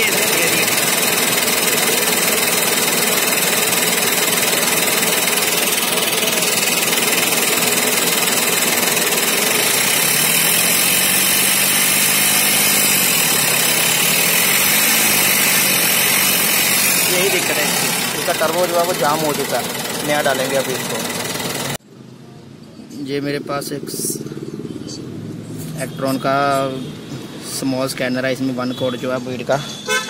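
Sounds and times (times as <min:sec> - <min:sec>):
diesel engine idling clatter: 0:00.0 - 0:21.8.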